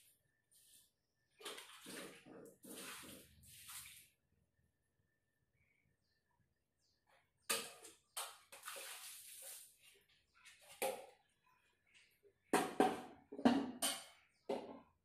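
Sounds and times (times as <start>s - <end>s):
water pouring from bucket: 1.4s - 4.2s, 8.4s - 10.0s
water splashing on tiled floor: 1.4s - 4.2s, 7.5s - 10.8s
metal bucket knocks: 12.6s - 14.8s.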